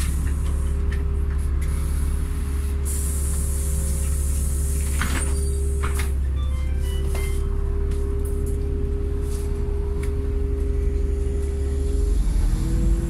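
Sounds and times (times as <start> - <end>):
bus deep rumble: 0.0 - 13.0
steady whine: 6.4 - 13.0.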